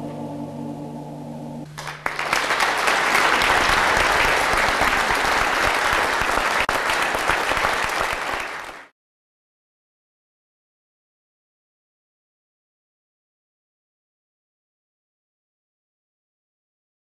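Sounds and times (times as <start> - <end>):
audience applause: 1.8 - 8.9.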